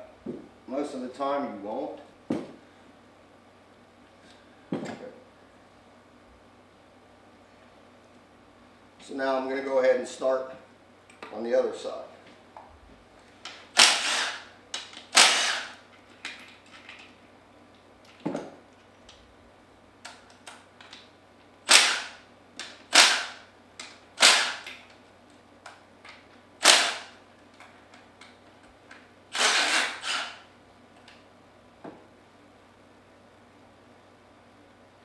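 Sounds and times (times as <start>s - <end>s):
cordless impact tool bursts: 13.7s - 15.8s, 21.7s - 23.5s, 24.2s - 24.7s, 26.6s - 27.2s, 29.3s - 30.5s.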